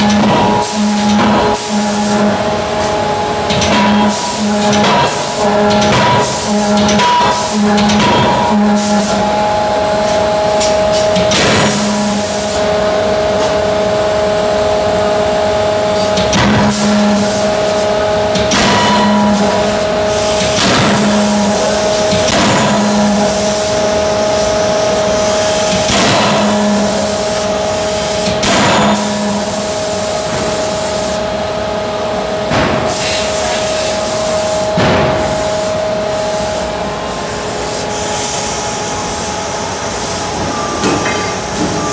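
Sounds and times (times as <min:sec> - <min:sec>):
machine hum: 0:00.0 - 0:41.9
forging hammer striking metal: 0:18.4 - 0:23.3.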